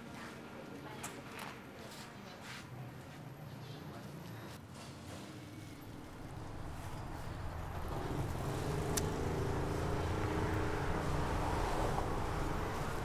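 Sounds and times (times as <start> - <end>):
vehicle engine running: 5.6 - 13.0.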